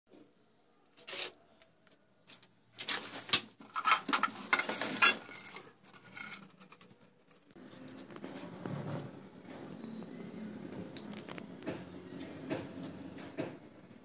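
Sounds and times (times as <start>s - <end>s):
scraping of junk: 2.8s - 9.0s.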